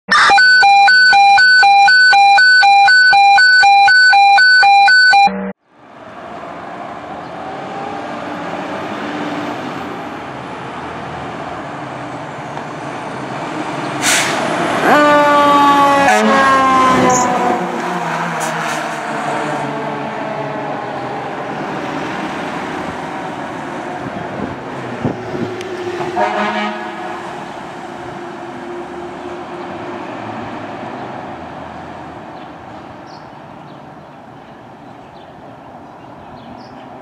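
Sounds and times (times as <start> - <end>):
pulsing siren tone: 0.1 - 5.6
wailing siren: 0.1 - 5.6, 14.8 - 18.3
road noise: 0.1 - 37.0
sharp horn blasts: 26.2 - 27.2.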